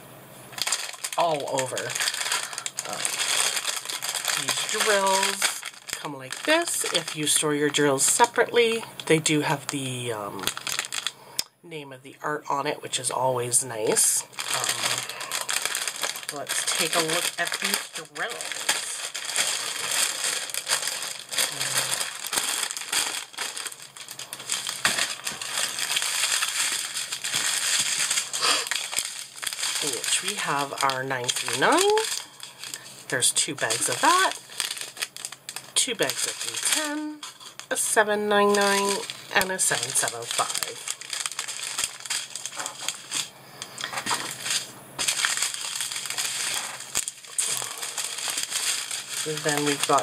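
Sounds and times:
plastic bags crinkling and rattling: 0.5s - 11.2s, 12.5s - 50.0s.

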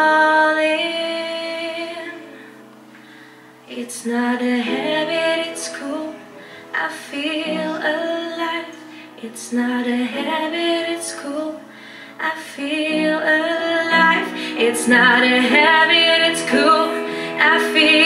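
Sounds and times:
woman singing with vibrato: 0.0s - 2.3s, 3.7s - 18.0s
upright piano accompaniment: 0.0s - 18.0s.

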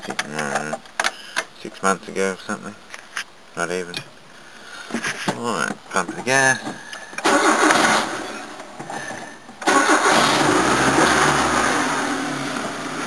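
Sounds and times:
starter motor cranking: 7.2s - 8.2s, 9.6s - 11.8s.

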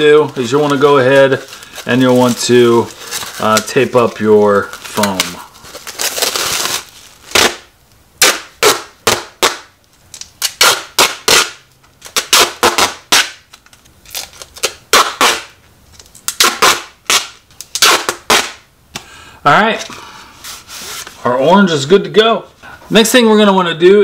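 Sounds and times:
tape ripping off roll: 0.2s - 18.7s.

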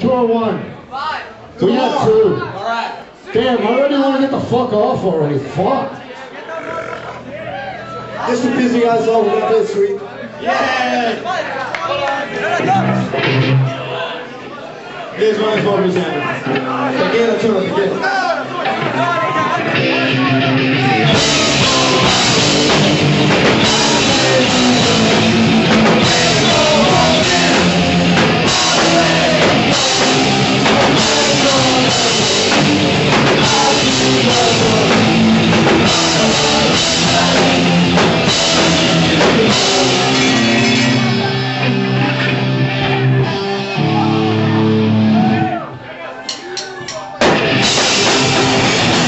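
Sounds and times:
punk rock band playing live: 12.6s - 13.7s, 16.4s - 45.5s, 47.2s - 49.0s
distorted electric guitar: 12.6s - 13.8s, 18.4s - 45.6s, 47.2s - 49.0s
sung vocals: 19.8s - 43.2s
drum kit with cymbals: 20.1s - 41.9s, 47.2s - 49.0s.

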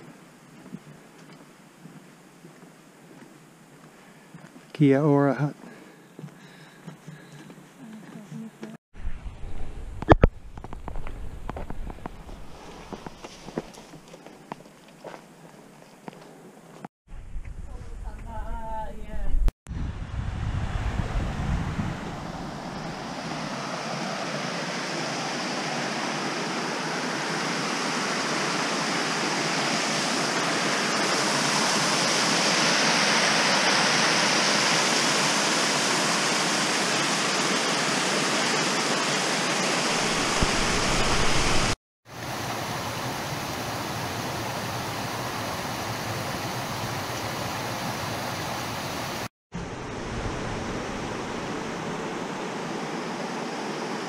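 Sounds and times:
creek water rushing over rocks: 23.1s - 44.0s.

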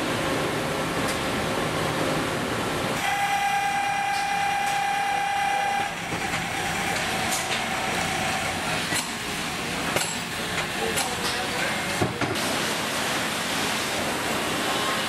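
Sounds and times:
machine whine: 3.0s - 11.9s.

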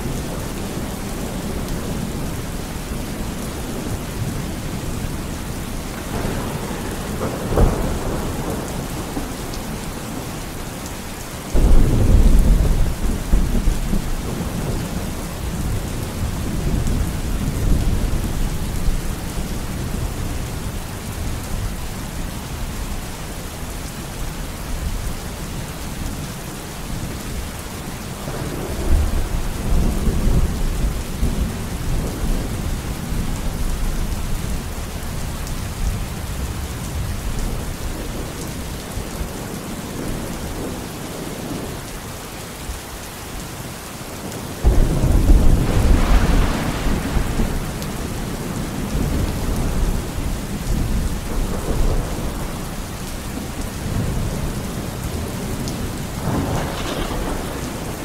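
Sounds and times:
thunder rumbling: 0.0s - 10.6s, 11.5s - 21.6s, 28.2s - 34.6s, 44.6s - 58.0s
heavy rain: 0.0s - 58.0s
thunderclap: 6.1s - 10.2s, 11.5s - 15.0s, 44.6s - 52.7s, 56.2s - 58.0s.

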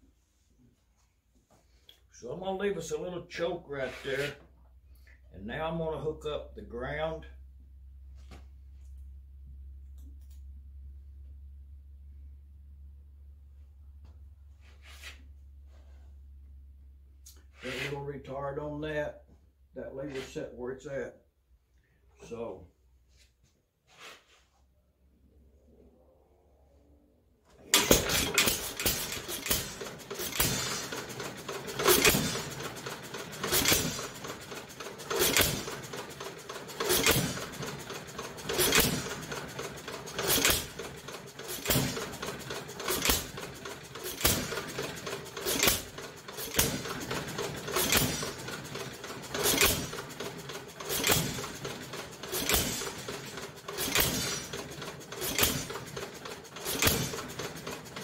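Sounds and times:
engine clicking: 27.5s - 58.0s
engine firing pops: 27.7s - 58.0s.

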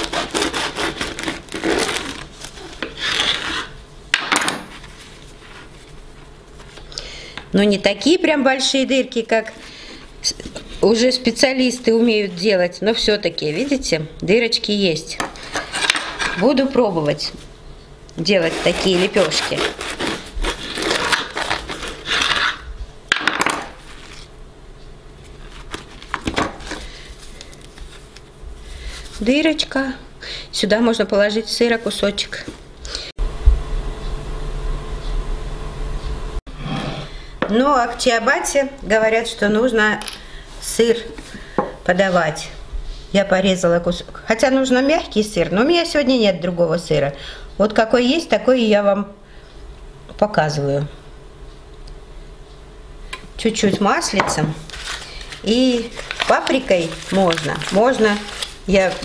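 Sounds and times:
bread knife sawing crust: 0.0s - 2.2s, 18.2s - 22.6s.

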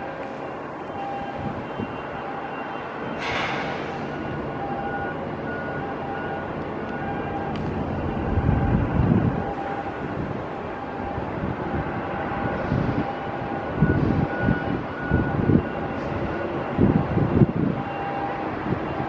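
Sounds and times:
wind buffeting microphone: 0.0s - 2.3s, 5.8s - 19.0s
steady low rumble: 3.2s - 17.8s.

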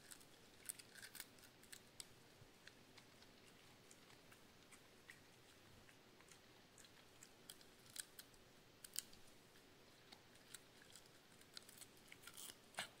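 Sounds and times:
dog crunching vegetable: 0.0s - 1.9s.

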